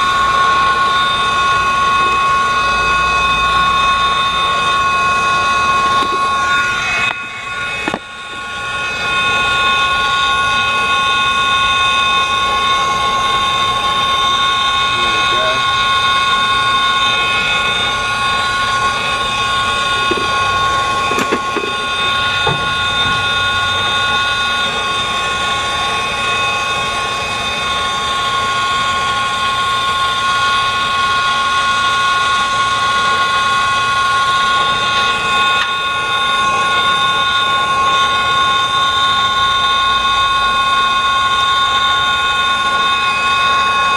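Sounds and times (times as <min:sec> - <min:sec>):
steady high whine: 0:00.0 - 0:43.9
torch flame hissing: 0:00.0 - 0:43.9.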